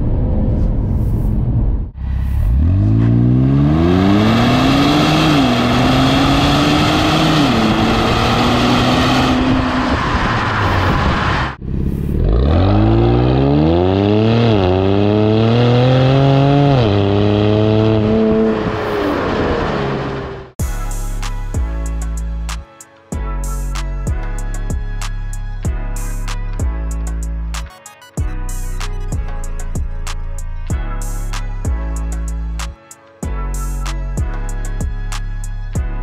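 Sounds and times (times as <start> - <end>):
car exhaust under hard acceleration: 0.0 - 20.6.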